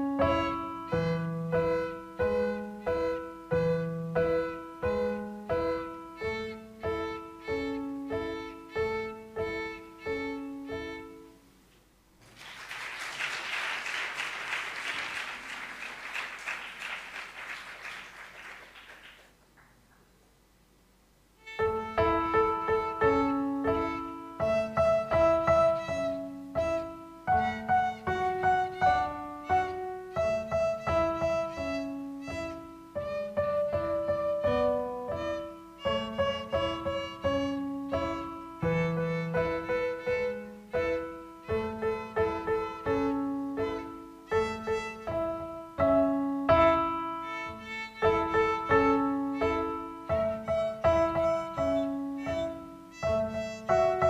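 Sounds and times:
violin melody: 0.0s - 11.4s, 21.4s - 54.0s
piano playing: 0.0s - 11.5s, 21.4s - 54.0s
audience applause: 12.2s - 19.8s.

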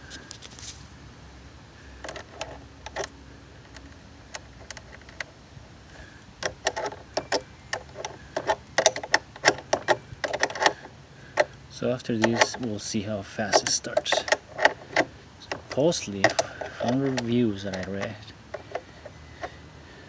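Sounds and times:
wrench clicking on metal nut: 12.2s - 12.7s, 13.5s - 18.8s.

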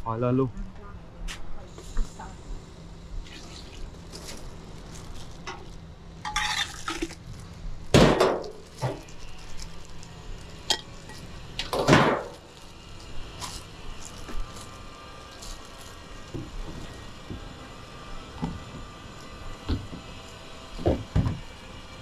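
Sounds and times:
bowls and utensils clattering: 6.3s - 7.2s.

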